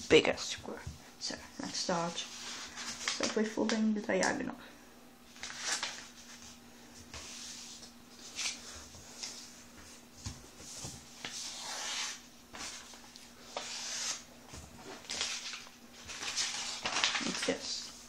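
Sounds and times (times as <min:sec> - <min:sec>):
paper rustling while folded: 0:01.8 - 0:03.7, 0:05.3 - 0:09.5, 0:10.6 - 0:18.0.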